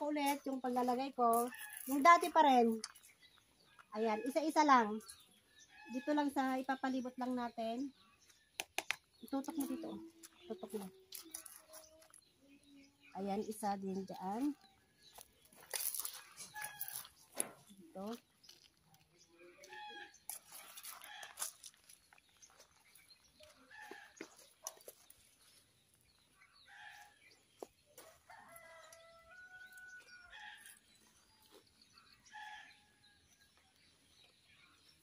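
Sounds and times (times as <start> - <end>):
rooster crowing: 28.0 - 30.8.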